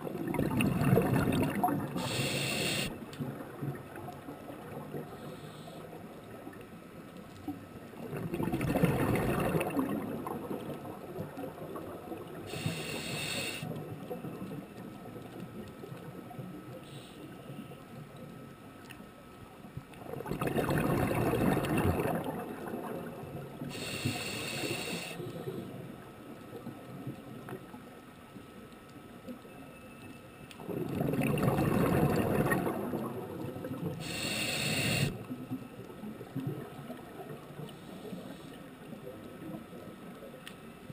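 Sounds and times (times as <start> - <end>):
hissing regulator inhalation: 2.0 - 2.9, 12.5 - 13.7, 23.7 - 25.4, 34.0 - 35.2.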